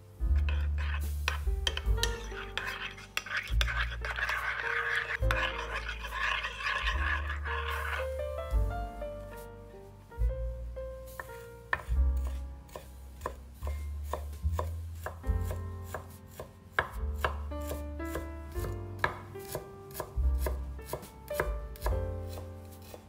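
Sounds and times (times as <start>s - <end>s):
soft piano music: 0.0s - 23.0s
knife chopping on cutting board: 11.2s - 23.0s.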